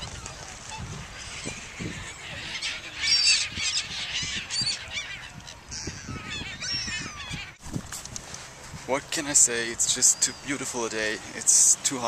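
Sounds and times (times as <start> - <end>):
gulls squawking: 0.0 - 7.6.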